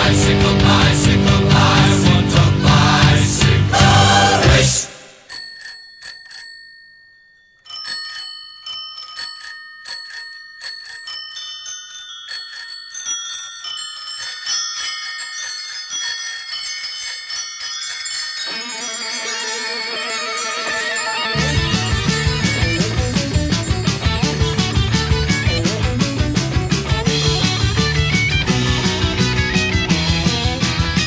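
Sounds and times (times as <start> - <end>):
band playing: 0.0 - 5.1, 20.3 - 31.0
bicycle bells ringing: 5.2 - 31.0.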